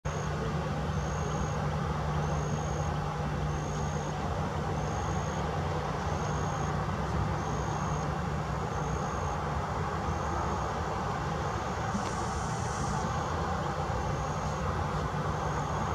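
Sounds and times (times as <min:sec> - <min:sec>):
distant jet engines idling: 0:00.1 - 0:15.9.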